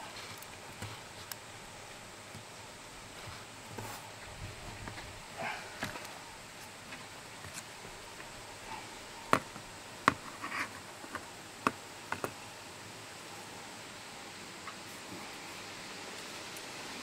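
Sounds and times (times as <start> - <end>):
soft rustling: 2.2 - 11.3.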